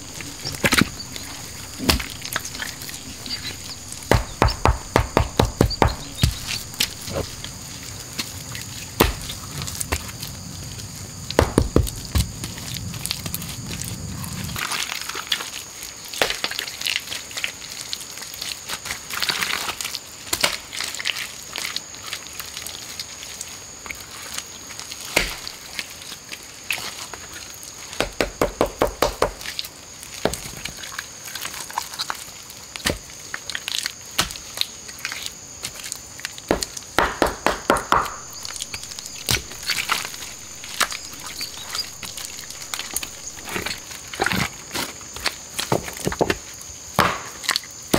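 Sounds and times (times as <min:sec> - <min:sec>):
stone knocking on stone: 0:00.0 - 0:07.4, 0:11.4 - 0:12.0, 0:36.5 - 0:43.8.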